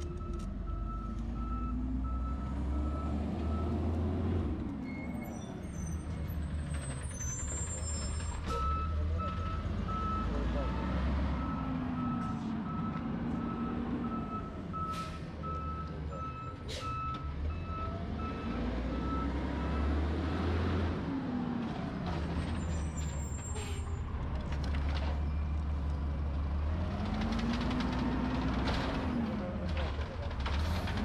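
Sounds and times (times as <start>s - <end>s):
truck reversing alarm beeping: 0.0s - 20.5s.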